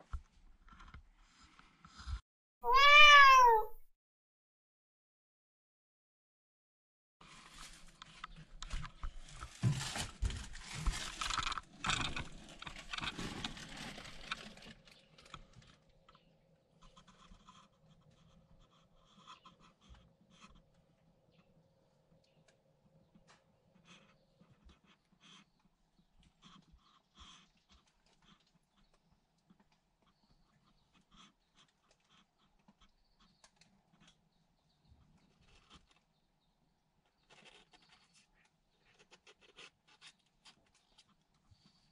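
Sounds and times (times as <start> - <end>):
kittens rustling plastic bags: 7.2 - 15.7.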